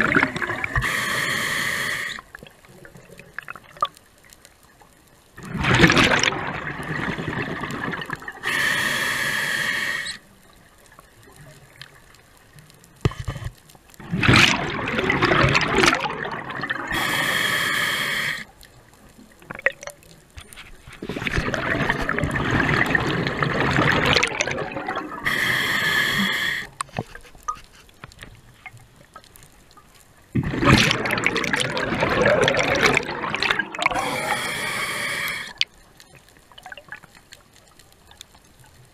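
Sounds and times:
gurgling exhaled bubbles: 0:00.0 - 0:01.0, 0:05.4 - 0:08.6, 0:14.0 - 0:17.4, 0:21.0 - 0:26.7, 0:30.3 - 0:35.6
hissing regulator inhales: 0:00.8 - 0:02.2, 0:08.4 - 0:10.2, 0:16.9 - 0:18.5, 0:25.2 - 0:26.7, 0:33.9 - 0:35.6.

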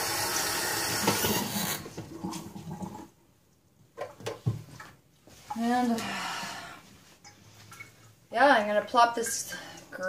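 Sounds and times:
water running from a tap: 0:00.0 - 0:01.8.

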